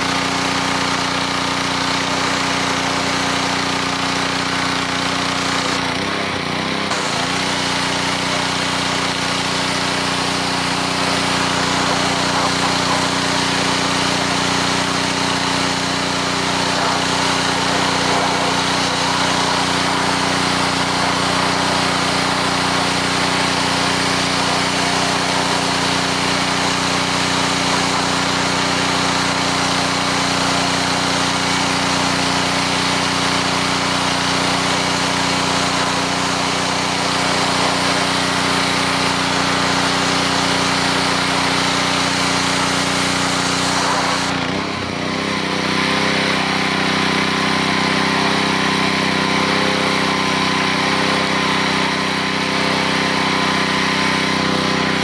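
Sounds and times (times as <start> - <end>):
pressure washer engine running: 0.0 - 55.0
water jet hissing against stone: 6.9 - 44.4.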